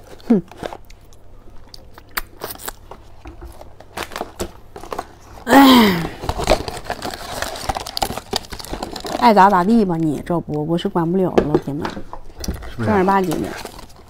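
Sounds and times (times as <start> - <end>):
eating clicks and crinkles: 6.2 - 10.8.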